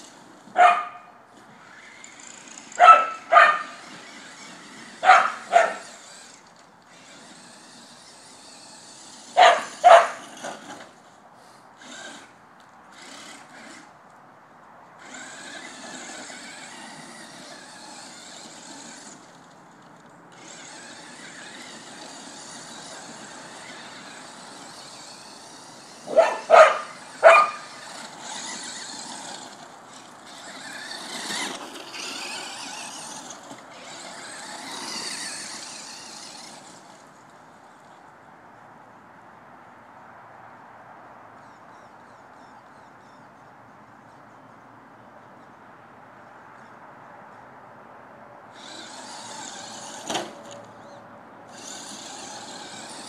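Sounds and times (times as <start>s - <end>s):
electric toy car whining: 0.0s - 14.1s, 15.0s - 38.1s, 48.5s - 53.0s
dog barking: 0.6s - 1.1s, 2.8s - 3.7s, 5.0s - 5.8s, 9.4s - 10.2s, 26.1s - 27.6s.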